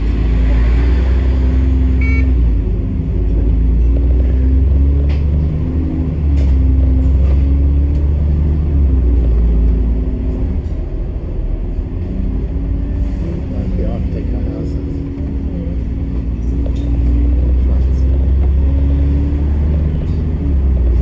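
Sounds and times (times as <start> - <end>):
bus engine and road rumble: 0.0 - 21.0.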